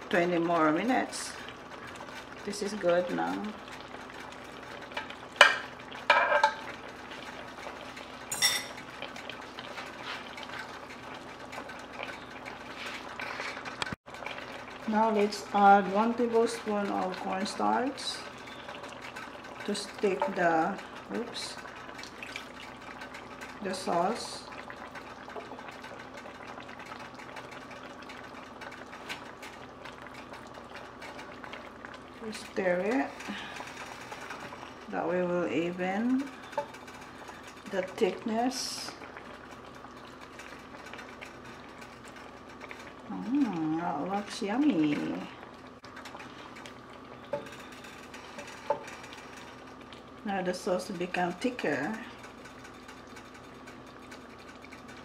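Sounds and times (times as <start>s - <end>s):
faint simmering: 0.0s - 55.0s
metal utensil clinking on cookware: 5.4s - 6.6s, 8.3s - 8.8s.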